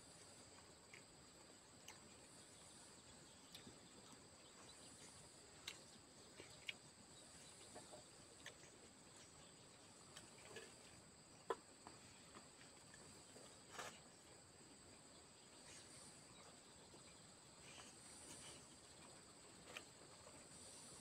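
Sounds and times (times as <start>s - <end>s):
insects droning: 0.0s - 21.0s
soft eating clicks: 0.5s - 2.4s, 3.3s - 4.7s, 5.4s - 8.8s.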